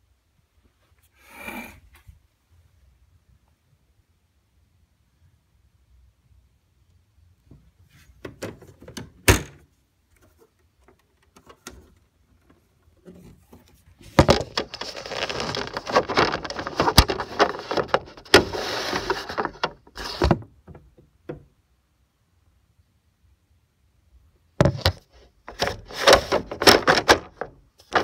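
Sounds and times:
microphone handling rustling: 13.1s - 20.5s.

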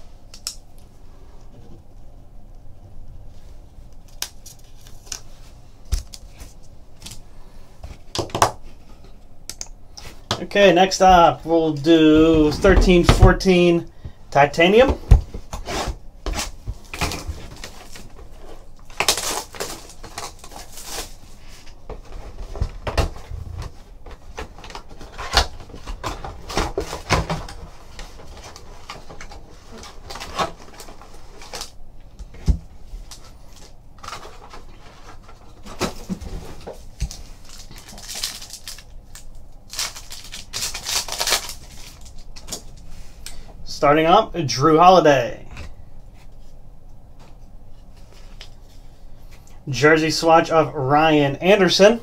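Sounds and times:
cardboard box crinkling and rustling: 15.6s - 21.2s, 33.5s - 38.9s, 39.7s - 42.3s
foil pack tearing: 18.8s - 21.2s, 37.0s - 42.3s.

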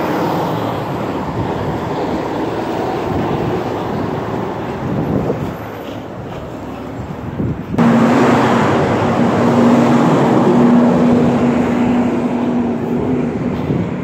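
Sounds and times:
truck passing close by: 7.7s - 14.0s.

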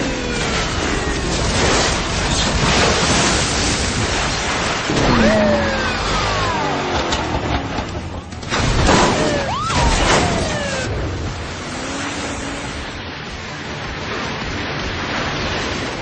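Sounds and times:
steady rushing noise: 0.0s - 16.0s
car crash: 0.4s - 12.9s.

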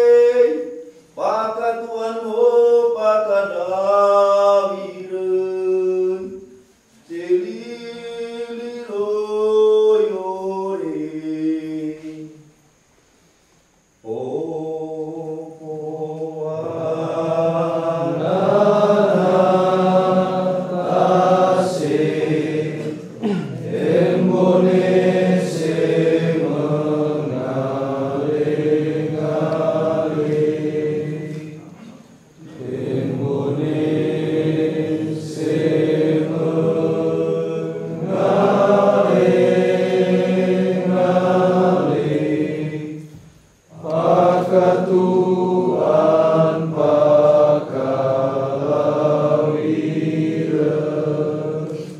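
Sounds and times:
men chanting together: 7.0s - 12.4s, 14.0s - 51.9s
man singing: 7.1s - 12.2s.

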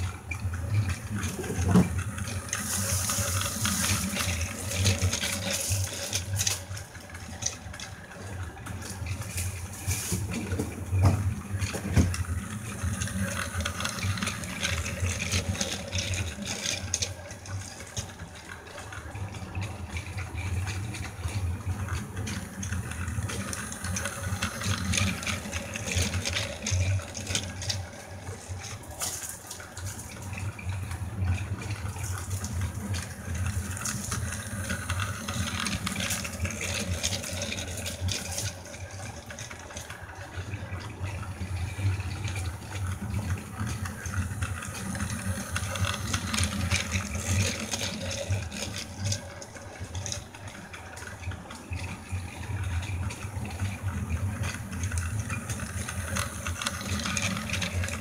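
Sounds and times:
toy train motor hum: 0.0s - 58.0s
toy train wheels rattling: 11.5s - 19.0s, 20.0s - 30.1s, 31.8s - 40.2s, 41.2s - 51.4s, 52.4s - 58.0s.

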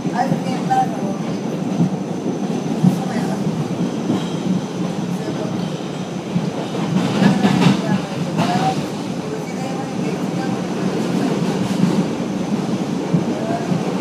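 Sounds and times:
subway car running noise: 0.0s - 14.0s
faint voices: 4.8s - 14.0s.

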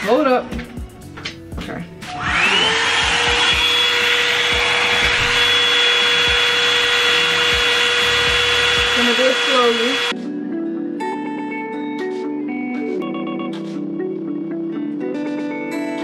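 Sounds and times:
hot air brush motor whining: 2.1s - 10.1s.

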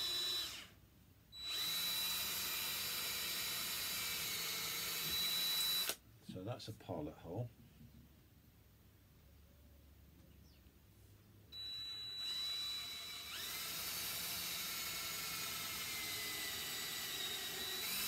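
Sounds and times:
cordless drill boring into wood: 0.0s - 0.8s, 1.4s - 6.0s, 11.6s - 18.0s.

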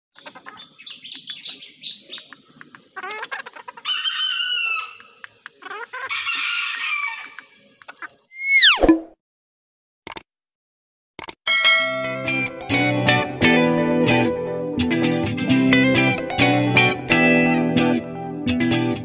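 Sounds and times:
hen clucking softly: 0.2s - 8.3s
rooster crowing: 3.8s - 5.0s, 6.1s - 7.4s.

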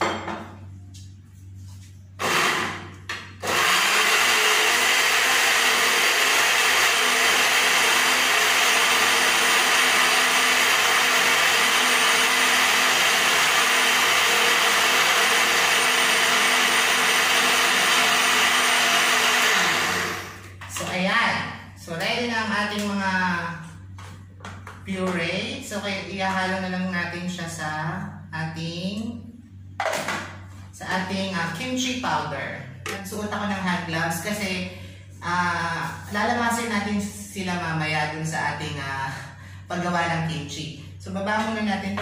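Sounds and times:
electric blender running: 2.2s - 20.9s.

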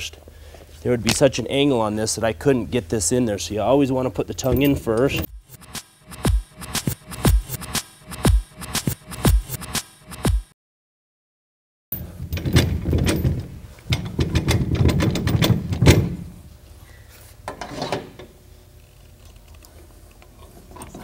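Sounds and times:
metal hardware knocking and clanking: 12.3s - 16.2s.

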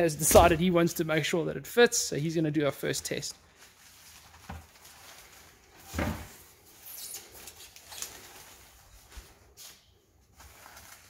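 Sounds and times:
plastic film rustling and crinkling: 2.8s - 11.0s.

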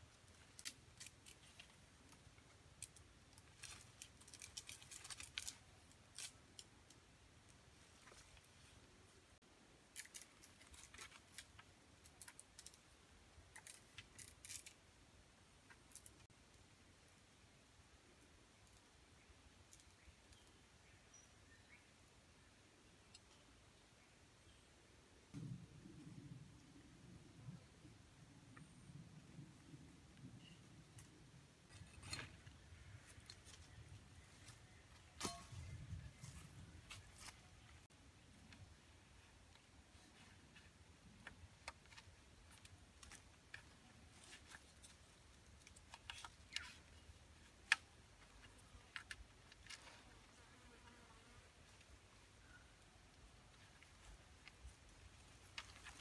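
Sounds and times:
wooden poles crackling and clicking: 0.0s - 7.0s, 9.9s - 12.9s, 13.5s - 14.8s, 39.5s - 50.1s, 53.1s - 56.0s.

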